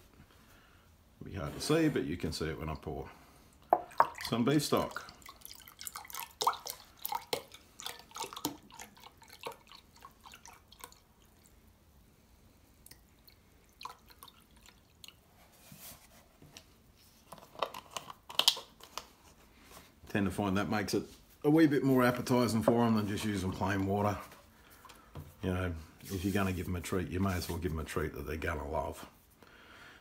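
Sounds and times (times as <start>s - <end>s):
liquid pouring into a jug: 3.6s - 11.7s, 12.8s - 15.3s.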